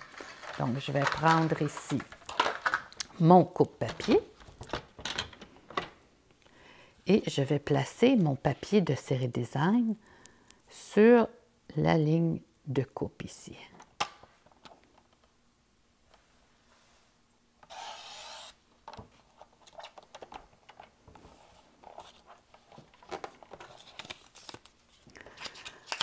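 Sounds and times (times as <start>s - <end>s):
paper rustling: 0.0s - 2.8s, 21.2s - 26.0s
paper trimmer blade rasp: 17.7s - 18.6s.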